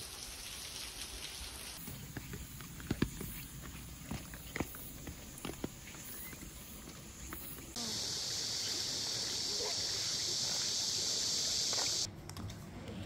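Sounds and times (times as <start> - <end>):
high-pitched insect chorus: 4.1 - 12.1.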